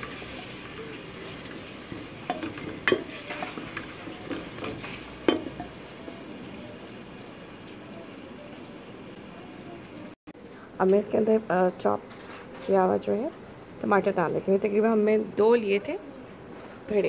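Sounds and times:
onions sizzling in oil: 0:00.0 - 0:10.2
spoon knocking against pot: 0:01.9 - 0:06.2.

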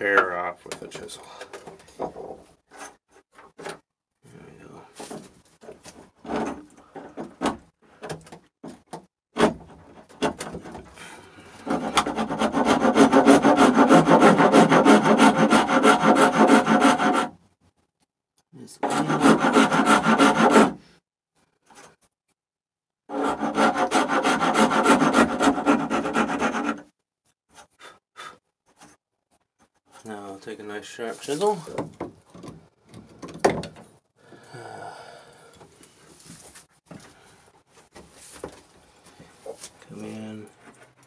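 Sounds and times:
rasp filing wood: 0:11.6 - 0:17.4, 0:18.8 - 0:20.8, 0:23.1 - 0:26.9.

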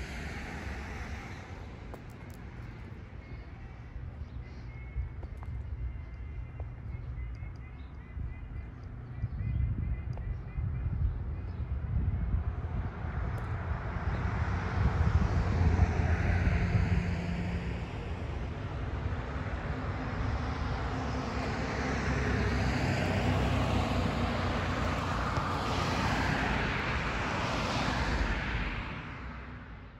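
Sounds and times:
vehicle rumble with hiss: 0:00.0 - 0:07.7.

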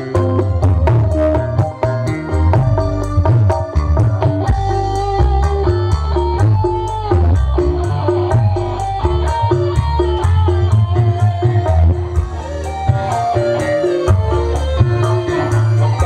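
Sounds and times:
electric guitar melody with slides: 0:00.0 - 0:16.0
heavy bass: 0:00.0 - 0:16.0
steady drum beat: 0:00.0 - 0:16.0.

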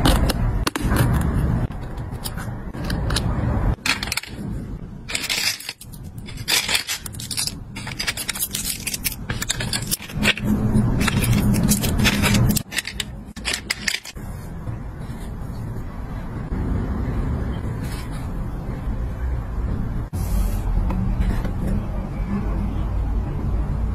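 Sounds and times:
plastic charms clicking and clattering: 0:01.8 - 0:04.5, 0:05.1 - 0:14.2.

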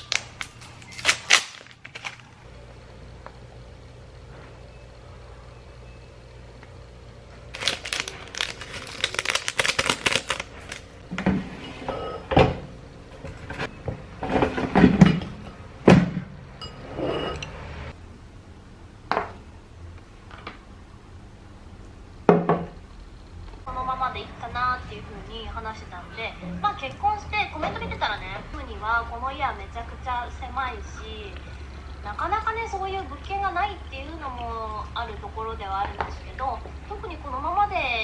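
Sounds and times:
packet crinkling: 0:00.0 - 0:02.4, 0:07.5 - 0:11.0
low steady hum: 0:00.0 - 0:38.0.

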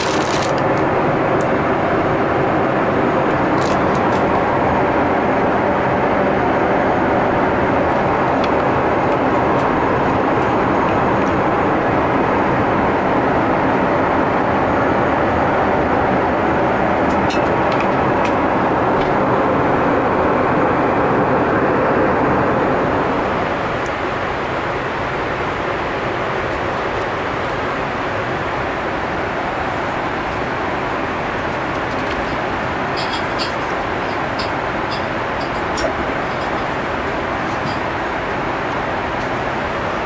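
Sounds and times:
airliner cabin noise rushing: 0:00.0 - 0:40.0.

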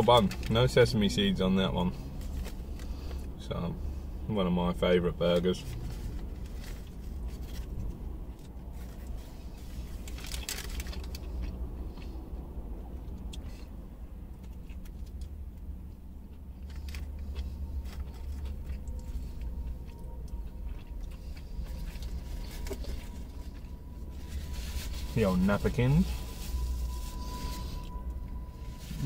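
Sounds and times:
low car rumble: 0:00.0 - 0:29.0
rustling crackles: 0:05.5 - 0:12.0, 0:21.0 - 0:29.0
man chewing crispy food: 0:05.6 - 0:26.8.

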